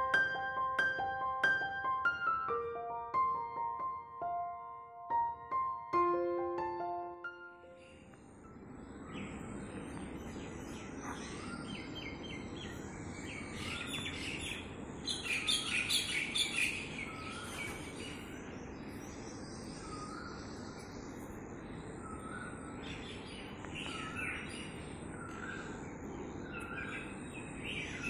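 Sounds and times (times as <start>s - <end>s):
mynah bird calling: 10.4s - 18.3s.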